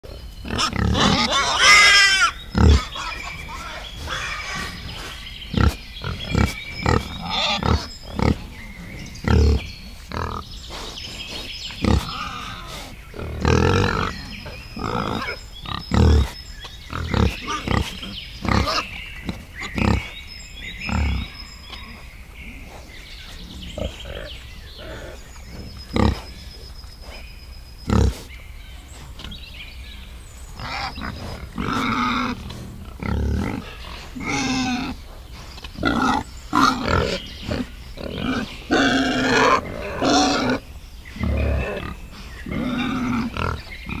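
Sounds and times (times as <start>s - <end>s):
piglets grunting: 0.4s - 20.1s, 23.4s - 26.4s, 27.9s - 28.3s, 30.6s - 35.1s, 35.8s - 40.6s
piglets squealing: 0.5s - 4.7s.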